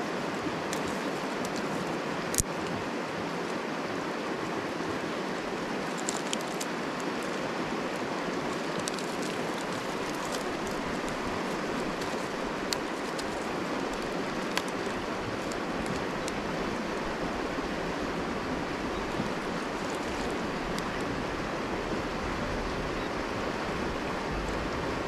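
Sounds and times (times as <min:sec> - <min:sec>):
river rushing: 0:00.0 - 0:25.0
dry sticks clicking: 0:00.7 - 0:02.8, 0:05.8 - 0:07.5, 0:08.3 - 0:16.4, 0:19.1 - 0:21.0.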